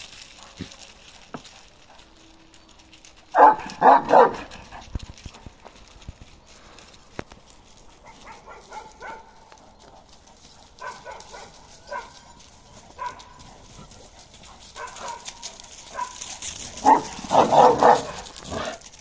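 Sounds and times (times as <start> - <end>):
dog high-pitched calls: 2.7 - 4.7.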